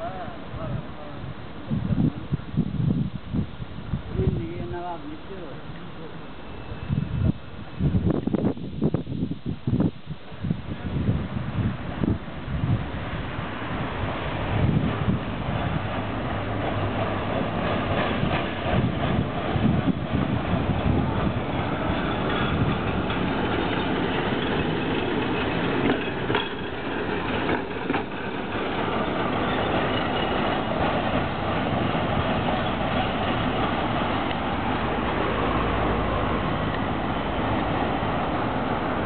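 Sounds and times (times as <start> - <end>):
tram wheels on rails: 0.0 - 39.0
passing cars: 11.6 - 39.0.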